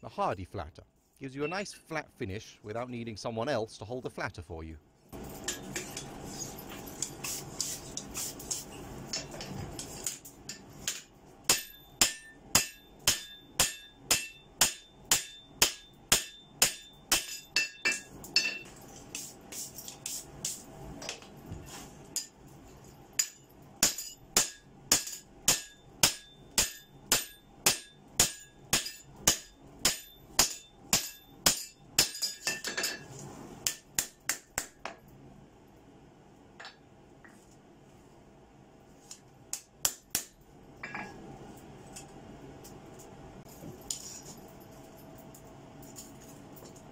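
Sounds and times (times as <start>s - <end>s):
hammer striking metal on anvil: 10.0s - 18.7s, 23.2s - 33.0s, 33.6s - 35.0s, 39.5s - 41.2s.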